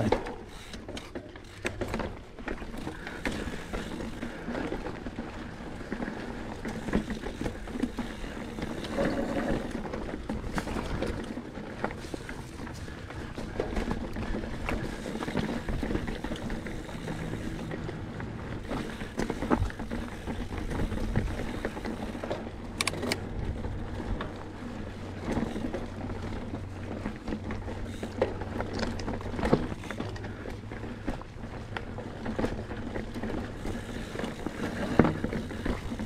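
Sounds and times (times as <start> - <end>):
bike rattling over rocks: 0.0 - 36.0
bike tyres rolling: 0.0 - 36.0.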